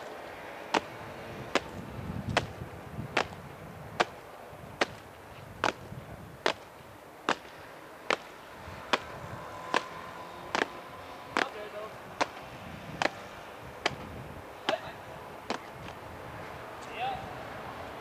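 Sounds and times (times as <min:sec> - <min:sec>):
boots stamping on stone: 0:00.7 - 0:03.4, 0:04.8 - 0:06.7, 0:07.3 - 0:09.1, 0:10.5 - 0:10.8.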